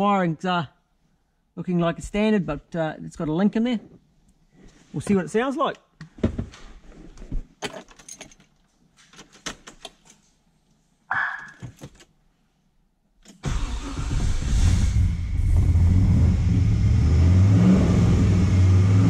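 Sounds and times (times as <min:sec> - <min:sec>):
keys rattling and clicking: 0:07.6 - 0:10.3
car engine starting and running: 0:13.4 - 0:19.0.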